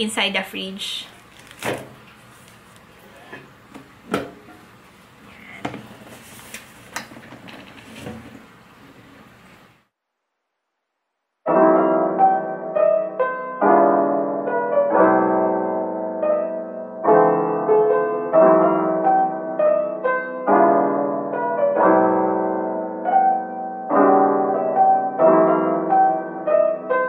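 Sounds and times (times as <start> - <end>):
soft piano music: 11.5 - 27.0.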